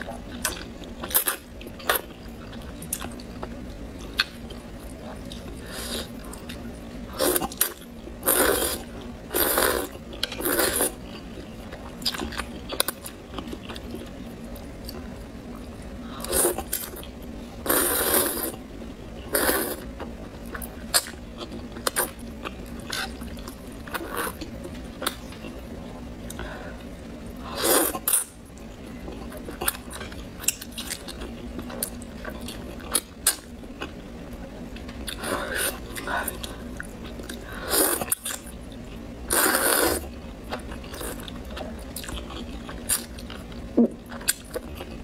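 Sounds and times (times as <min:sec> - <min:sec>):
slurping noodles: 0:17.6 - 0:18.6, 0:39.3 - 0:40.0.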